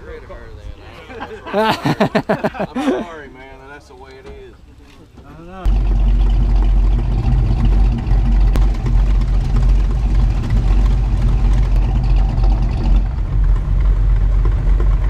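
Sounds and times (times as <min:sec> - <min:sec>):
car engine rumbling: 0:04.1 - 0:15.0.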